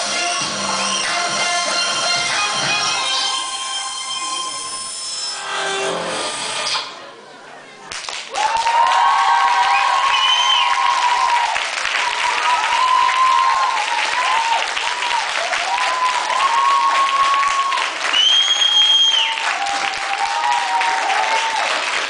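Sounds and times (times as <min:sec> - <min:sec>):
audience clapping and cheering: 0:07.8 - 0:22.0
shrill held whoop: 0:08.3 - 0:21.7.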